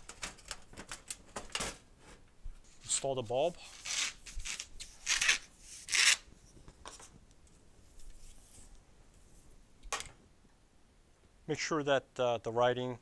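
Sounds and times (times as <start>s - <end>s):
tube rubbing and scraping: 3.7s - 6.3s.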